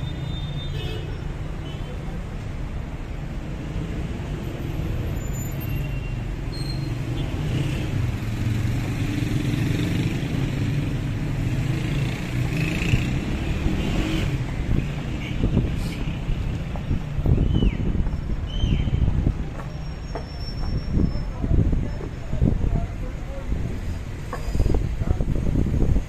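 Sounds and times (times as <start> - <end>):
cars passing: 6.4 - 26.0.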